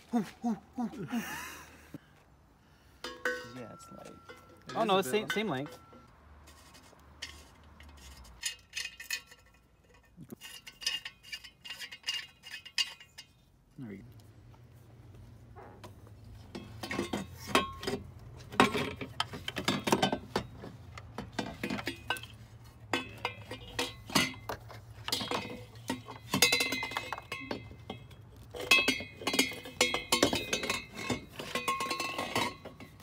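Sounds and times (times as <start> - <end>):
metal pipe clinking against metal: 3.0 - 6.1, 7.2 - 13.5, 16.4 - 33.0.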